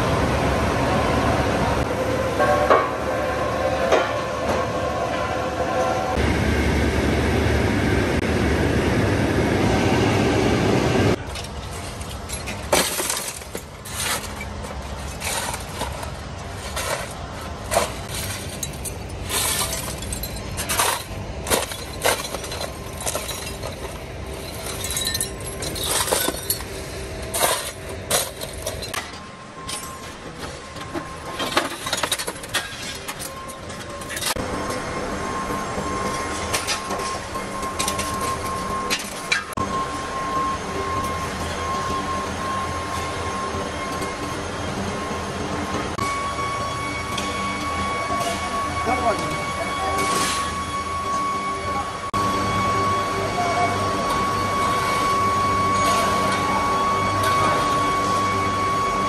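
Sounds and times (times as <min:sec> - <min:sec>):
rolling mill roller table rumble: 0:00.0 - 0:49.8
scrap metal clanking: 0:11.2 - 0:34.8.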